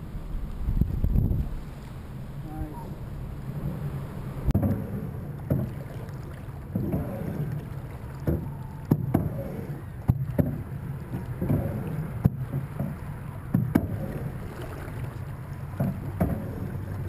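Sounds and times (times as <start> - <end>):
wind rumble on microphone: 0.0 - 17.0
water slapping against boat hull: 4.4 - 17.0
sharp knocks: 5.5 - 5.8.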